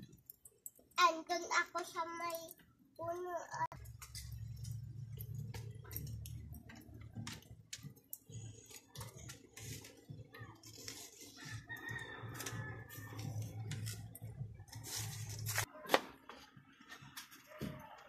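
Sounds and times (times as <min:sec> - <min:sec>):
rooster crowing: 0:11.4 - 0:13.5.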